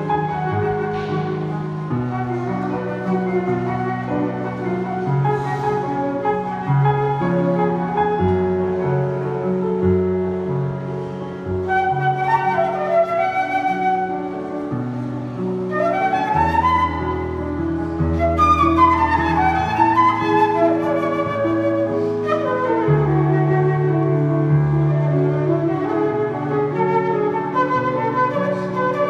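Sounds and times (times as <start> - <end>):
flute melody: 0.0 - 29.0.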